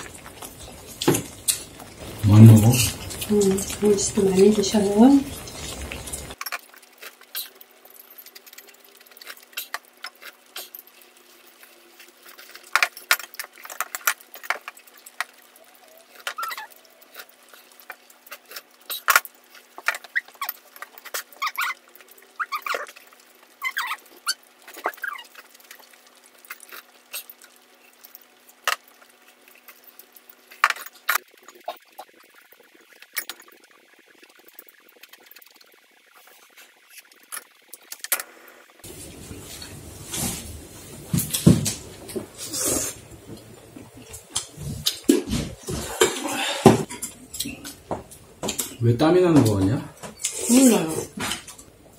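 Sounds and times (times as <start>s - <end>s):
faint steady hum: 0.0s - 6.4s
stew simmering and bubbling: 0.0s - 51.9s.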